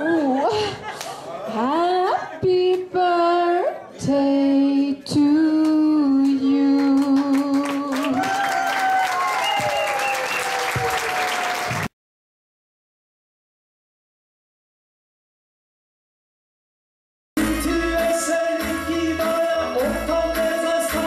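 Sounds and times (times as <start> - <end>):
woman singing into microphone: 1.5 - 8.3
audience applause and cheers: 7.0 - 12.0.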